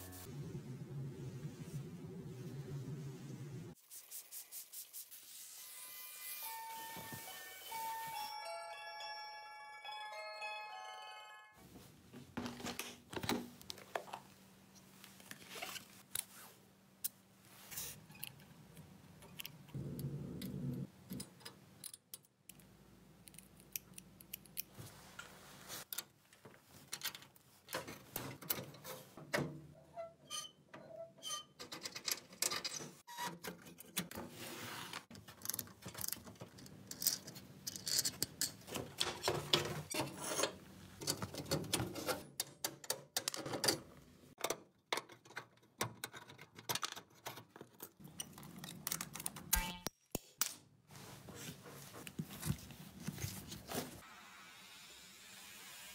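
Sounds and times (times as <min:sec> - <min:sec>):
metal toy car clicks and scrapes: 0:35.4 - 0:38.7.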